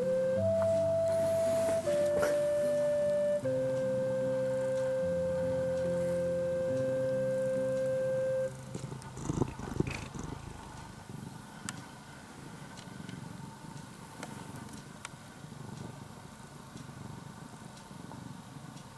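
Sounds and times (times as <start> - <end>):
cat purring: 0.0 - 3.5, 4.4 - 18.9
background music chord: 0.0 - 9.2
faint clicks: 8.6 - 12.0, 12.7 - 16.1.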